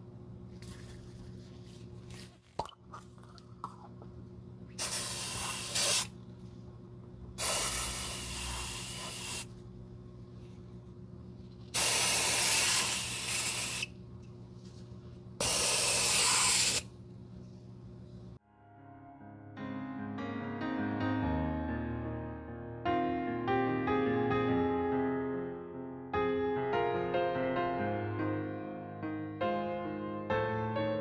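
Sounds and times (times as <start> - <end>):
aerosol spray can hissing: 4.8 - 6.1, 7.4 - 9.5, 11.8 - 13.9, 15.4 - 16.9.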